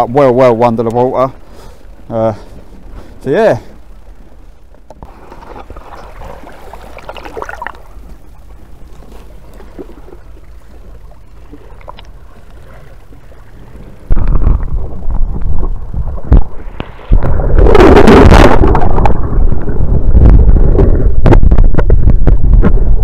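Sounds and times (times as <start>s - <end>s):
muffled underwater rumbling: 0.0s - 23.0s
water lapping: 5.0s - 15.3s.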